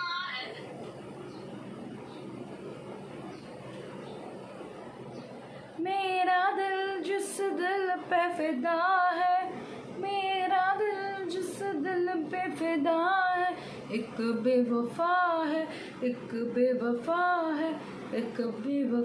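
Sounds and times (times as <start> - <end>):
girl singing unaccompanied: 5.8 - 19.0.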